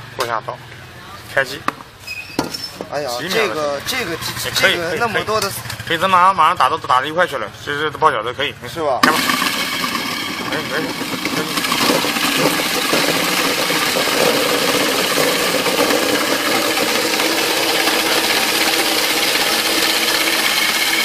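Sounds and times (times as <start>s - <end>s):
electric vegetable chopper running: 9.0s - 21.0s.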